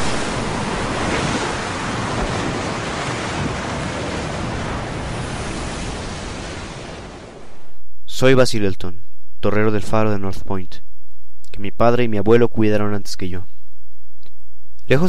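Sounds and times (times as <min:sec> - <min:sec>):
waves and surf breaking: 0:00.0 - 0:07.8
wind: 0:00.0 - 0:08.0.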